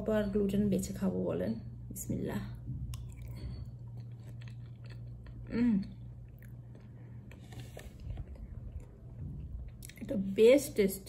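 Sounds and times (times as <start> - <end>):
person chewing soggy cereal: 2.9 - 10.1.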